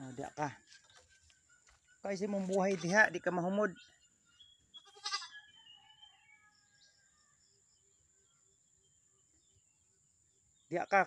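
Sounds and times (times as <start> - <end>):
goat bleating: 4.8 - 5.4.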